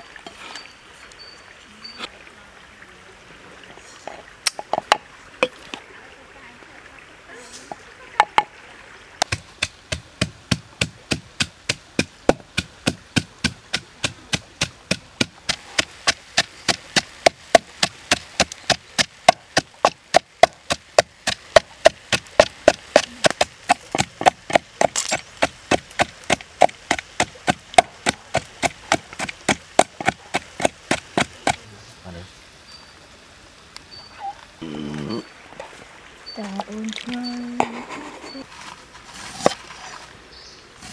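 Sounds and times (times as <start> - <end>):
pestle pounding in wooden mortar: 9.2 - 31.6.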